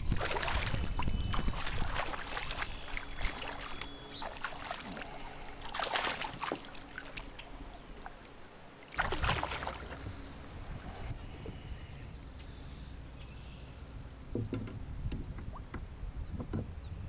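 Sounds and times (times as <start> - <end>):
fish splashing in water: 0.0 - 8.2, 8.8 - 10.0.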